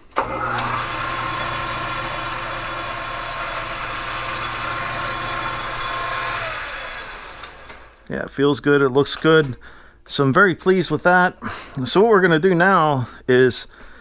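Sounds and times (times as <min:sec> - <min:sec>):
lathe motor humming and whining: 0:00.2 - 0:08.0.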